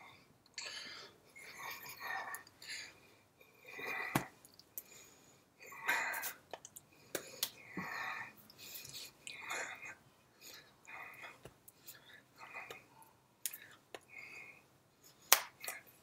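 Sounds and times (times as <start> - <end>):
breathy mouth sounds: 5.7 - 15.9.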